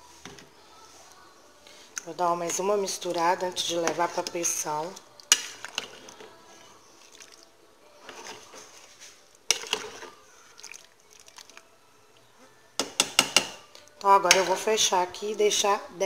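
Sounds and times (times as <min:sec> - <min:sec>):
soft liquid stirring: 0:00.0 - 0:15.0
spoon clacking against pot: 0:02.5 - 0:06.4, 0:09.5 - 0:11.6, 0:12.8 - 0:14.7.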